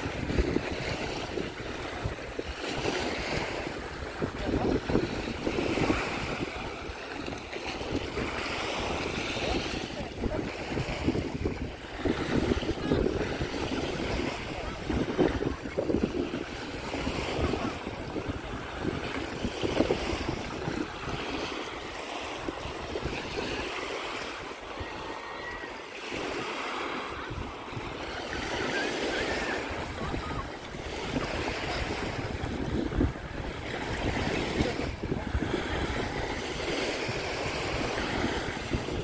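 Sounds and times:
small waves breaking on beach: 0.0s - 39.0s
wind buffeting microphone: 0.0s - 39.0s.

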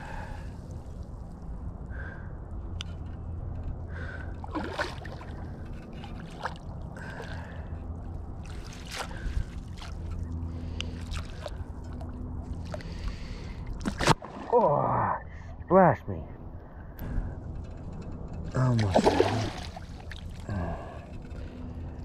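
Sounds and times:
water lapping: 3.9s - 14.7s, 18.6s - 21.8s.

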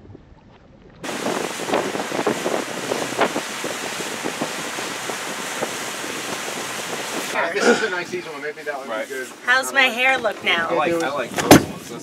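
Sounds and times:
wind on microphone: 0.0s - 8.2s
churning splashing wake water: 0.4s - 12.0s
motorboat engines running: 1.0s - 10.8s.

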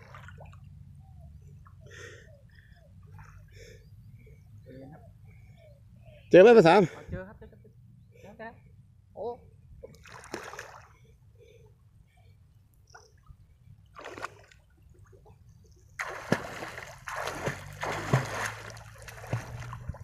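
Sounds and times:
water splashing: 0.0s - 0.8s, 9.8s - 11.0s, 13.8s - 20.0s.

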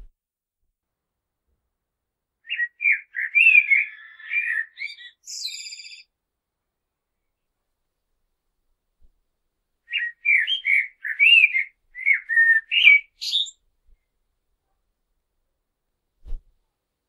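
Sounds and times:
blackbird singing: 2.4s - 6.1s, 9.9s - 13.6s.

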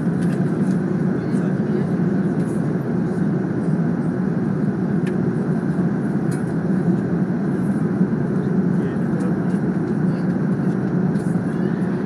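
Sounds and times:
airliner cabin engine rush: 0.0s - 12.0s.

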